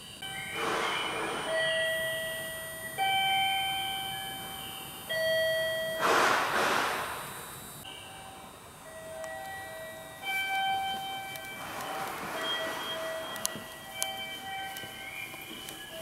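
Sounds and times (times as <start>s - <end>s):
electronic chime melody: 0.2s - 6.0s, 7.9s - 16.0s
short burst of hissing: 6.0s - 7.2s.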